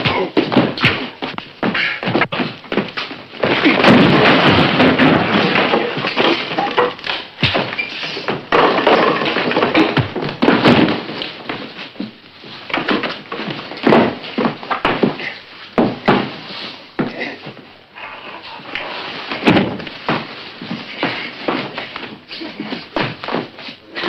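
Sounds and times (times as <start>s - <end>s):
bodies crashing against furniture: 0.0s - 17.7s, 18.4s - 24.0s
heavy thuds: 0.0s - 17.7s.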